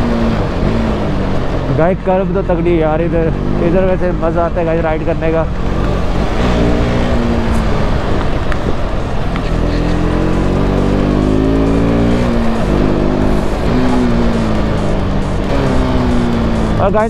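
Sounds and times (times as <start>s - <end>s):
motorcycle engine revving: 0.0s - 17.0s
wind noise: 4.5s - 16.8s.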